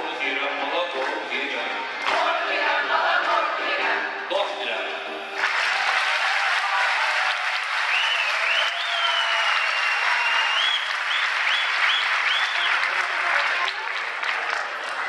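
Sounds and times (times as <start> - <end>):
audience applauding: 5.4 - 15.0
shrill whistle: 7.9 - 12.8.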